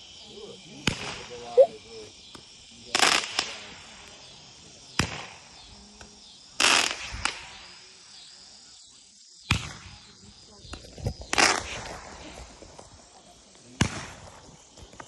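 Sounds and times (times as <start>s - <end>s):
fireworks bangs: 4.9s - 5.6s.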